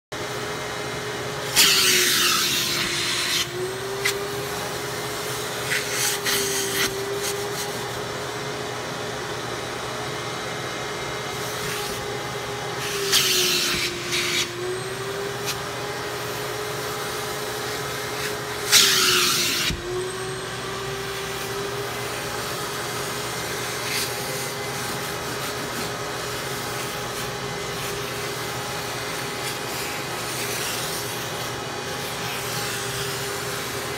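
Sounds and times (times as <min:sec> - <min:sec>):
vacuum cleaner running: 0:00.1 - 0:33.9.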